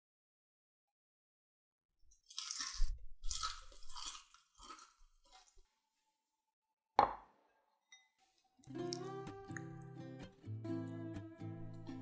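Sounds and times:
crunching bites and chewing: 0:02.2 - 0:05.7.

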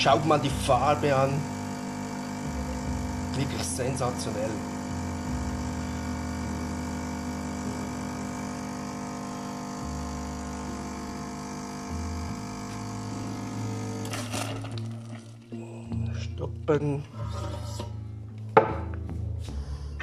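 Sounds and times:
espresso machine pump humming: 0:00.0 - 0:15.4.

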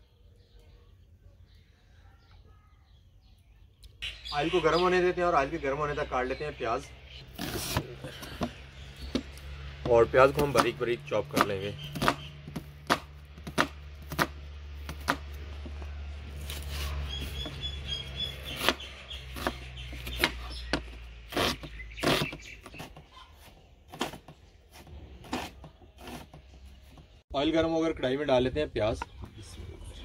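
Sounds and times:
knife chopping on cutting board: 0:10.4 - 0:15.8.

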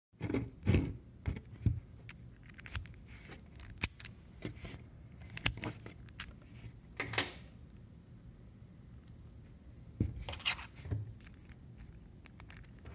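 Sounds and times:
key worked in lock: 0:11.0 - 0:12.9.

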